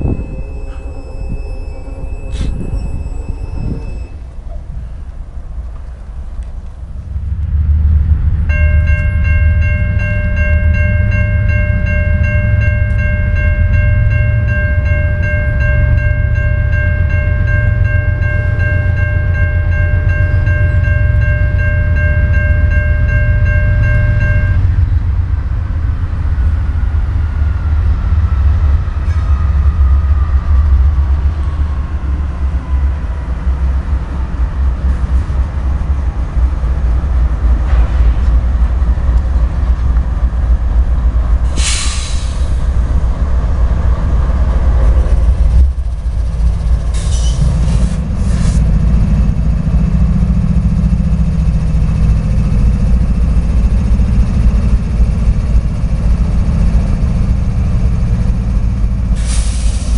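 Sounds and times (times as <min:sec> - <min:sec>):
railroad crossing bell ringing: 0:00.0 - 0:05.1, 0:08.2 - 0:37.7, 0:41.6 - 0:59.9
falling whine: 0:00.0 - 0:05.9
heavy low rumble: 0:00.0 - 0:59.9.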